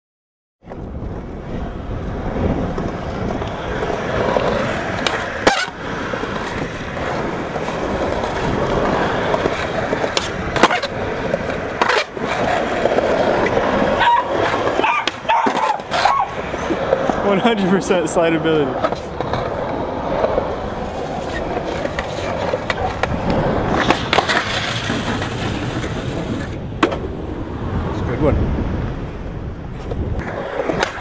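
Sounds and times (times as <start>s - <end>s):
skateboard clacks: 0.6s - 27.1s, 29.7s - 31.0s
skateboard rolling over pavement: 0.6s - 31.0s.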